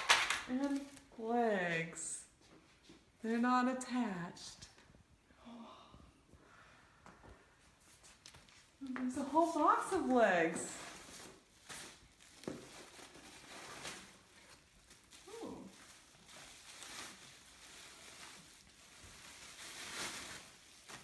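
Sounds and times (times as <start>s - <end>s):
plastic wrapping crinkling: 0.0s - 1.2s, 8.0s - 21.0s.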